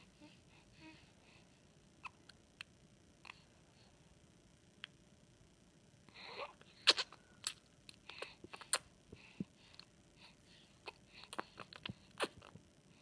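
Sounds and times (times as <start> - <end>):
baby sucking thumb: 6.8 - 7.6.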